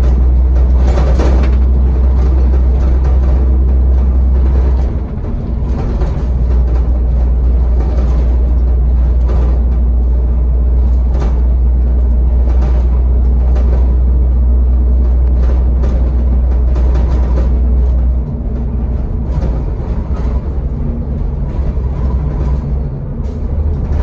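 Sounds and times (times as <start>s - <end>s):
bus diesel engine drone: 0.0s - 24.0s
road noise: 0.0s - 24.0s.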